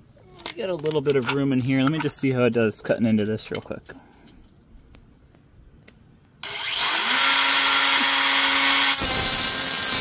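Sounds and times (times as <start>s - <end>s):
cut-off tool whine: 6.4s - 10.0s
wheel grinding through sheet steel: 6.4s - 10.0s.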